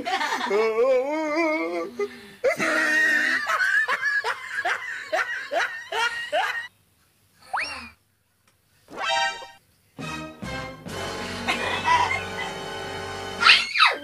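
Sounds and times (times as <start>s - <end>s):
woman laughing hard: 2.5s - 6.7s, 11.4s - 12.7s.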